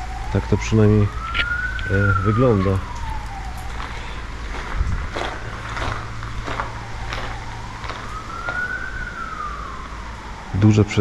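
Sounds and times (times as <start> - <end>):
police siren wailing: 0.0 - 11.0
footsteps on rubble: 2.5 - 9.3.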